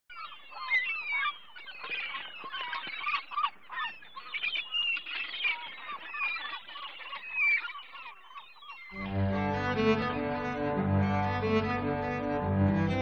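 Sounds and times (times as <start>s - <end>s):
flock of birds honking and squawking: 0.2s - 10.2s.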